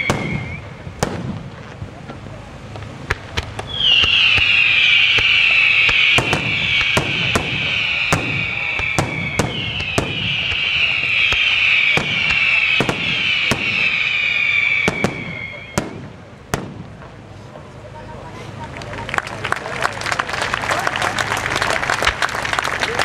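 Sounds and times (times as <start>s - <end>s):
firework whistles: 0.0s - 1.7s, 3.3s - 16.9s
sharp firework bangs: 0.0s - 2.0s, 2.8s - 17.3s.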